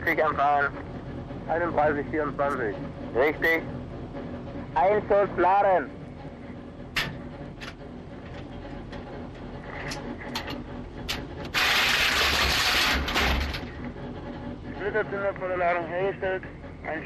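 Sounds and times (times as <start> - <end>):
metallic clicks and knocks: 6.9 - 11.3.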